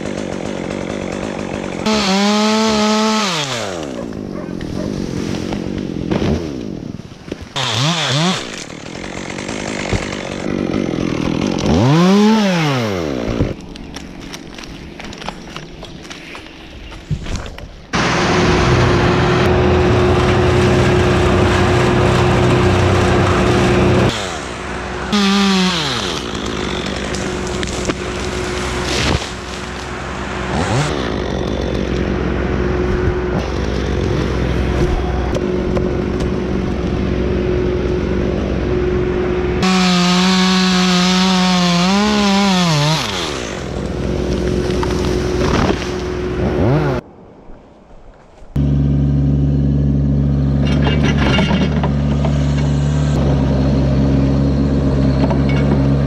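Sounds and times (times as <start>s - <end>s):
chainsaw cutting at full throttle: 0.0s - 4.4s, 7.5s - 14.7s, 18.0s - 35.4s, 38.7s - 47.0s.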